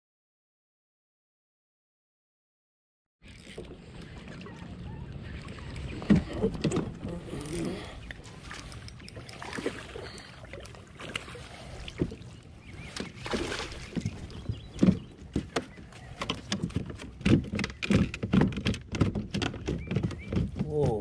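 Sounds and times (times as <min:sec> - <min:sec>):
knocks and thumps against kayak: 0:03.3 - 0:21.0
fish splashing at surface: 0:13.2 - 0:14.0.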